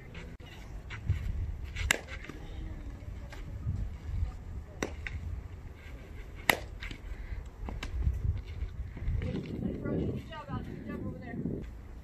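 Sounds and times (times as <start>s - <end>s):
bat hitting softball: 1.8s - 2.4s, 4.8s - 5.2s, 6.4s - 7.0s.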